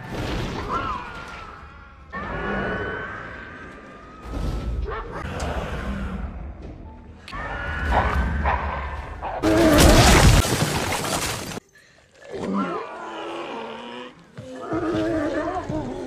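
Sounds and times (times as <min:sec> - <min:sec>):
loud crashing and shattering: 0:09.6 - 0:11.6.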